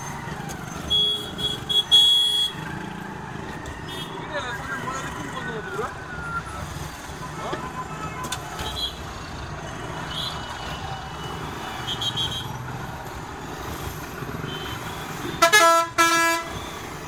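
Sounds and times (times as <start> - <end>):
motorcycle and bus engines: 0.0 - 17.0
loud vehicle horn: 0.9 - 2.6, 11.8 - 12.5, 14.5 - 16.6.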